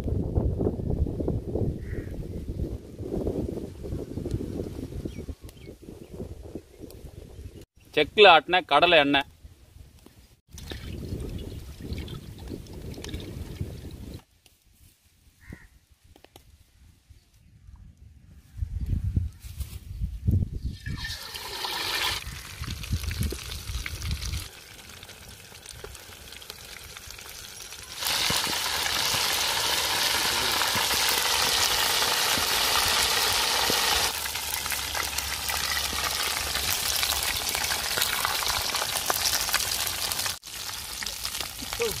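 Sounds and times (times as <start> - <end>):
oil sizzling and bubbling: 20.6 - 42.0.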